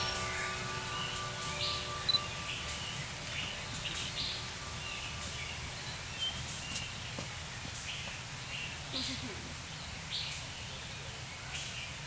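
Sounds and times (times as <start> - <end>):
birds chirping: 0.0 - 9.1.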